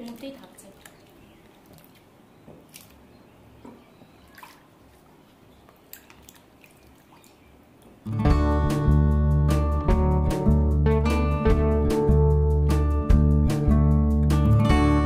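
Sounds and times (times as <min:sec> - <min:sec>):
small splashes: 0:00.0 - 0:03.1, 0:04.1 - 0:08.1
faint drips: 0:00.0 - 0:08.1.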